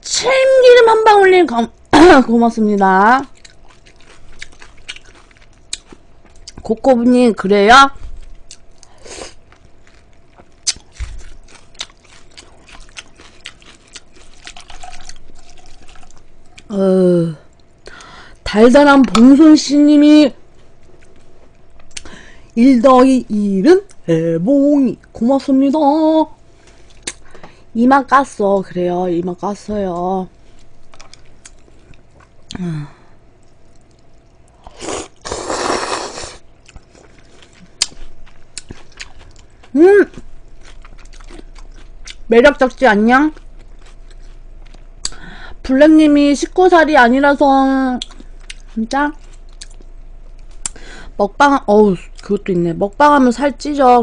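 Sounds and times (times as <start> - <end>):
chewing and mouth clicks: 3.2 - 6.7, 8.2 - 16.7, 26.7 - 27.2, 30.6 - 32.6, 33.4 - 35.2, 36.6 - 45.2, 48.0 - 50.8
slurping: 34.6 - 38.0.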